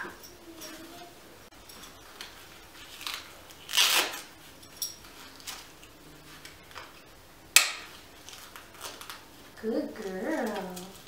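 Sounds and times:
harness straps rustling: 0.2 - 7.1, 7.8 - 11.0.

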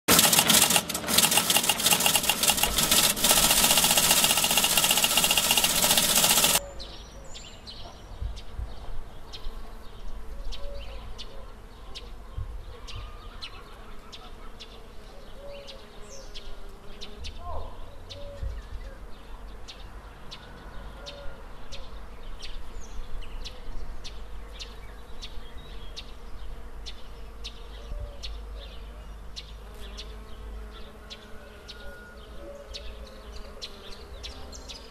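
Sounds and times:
bees buzzing: 0.1 - 6.6
loud ringing with held tones: 0.1 - 6.6.

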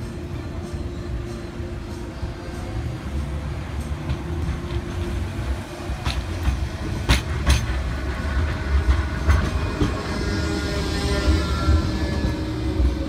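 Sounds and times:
tram rumbling: 0.0 - 13.0
wheels clacking over rail joints: 3.6 - 13.0.

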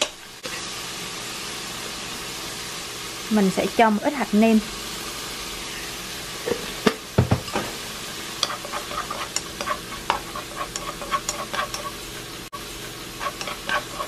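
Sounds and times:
food sizzling in a frying pan: 0.0 - 14.0
chopsticks tapping and scraping pan: 8.4 - 12.0, 13.2 - 14.0.

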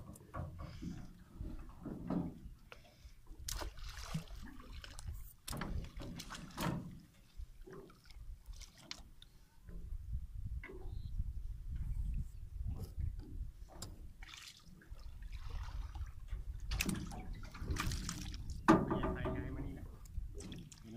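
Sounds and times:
water sloshing and splashing: 0.0 - 10.0, 11.7 - 20.9
fish trap knocking against boat: 18.7 - 19.6.

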